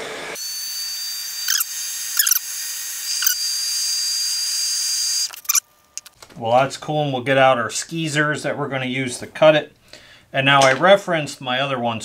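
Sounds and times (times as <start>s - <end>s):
heat gun hissing and whining: 0.0s - 5.6s.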